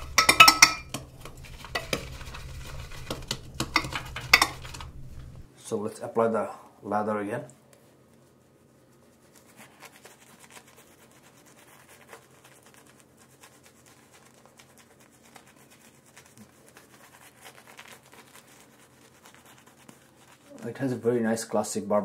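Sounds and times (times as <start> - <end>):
shaving brush swishing through lather: 0.0 - 5.5, 7.8 - 21.6.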